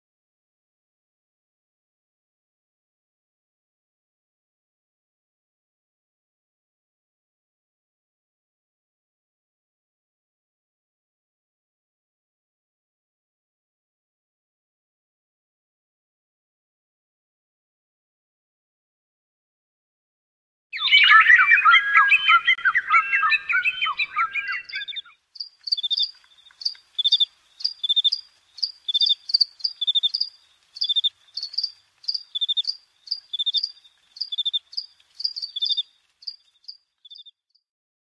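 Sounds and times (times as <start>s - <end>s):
animals chirping: 20.8s - 37.3s.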